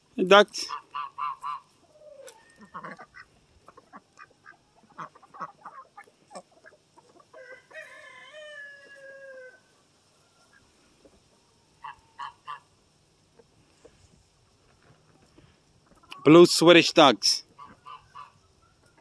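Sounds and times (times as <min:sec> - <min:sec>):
chicken clucking: 0:00.6 - 0:16.4, 0:17.4 - 0:19.0
rooster crowing: 0:07.3 - 0:09.7.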